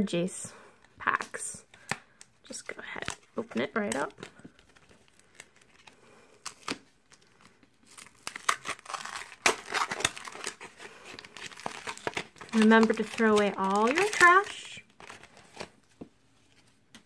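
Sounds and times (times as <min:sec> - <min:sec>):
foil wrapper tearing and crinkling: 0:07.8 - 0:15.8.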